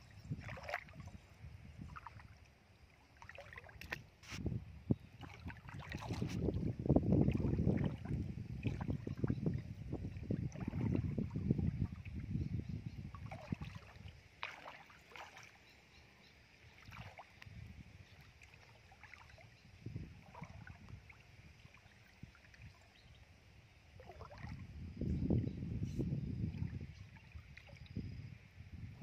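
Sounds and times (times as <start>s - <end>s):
wading through muddy water: 0.0s - 29.0s.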